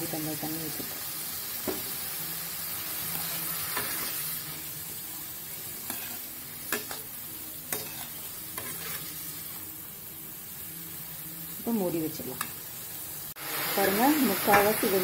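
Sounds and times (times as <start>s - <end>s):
vegetables sizzling in oil: 0.0s - 15.0s
metal spatula scraping pan: 3.0s - 4.5s, 5.8s - 7.1s, 7.7s - 9.6s.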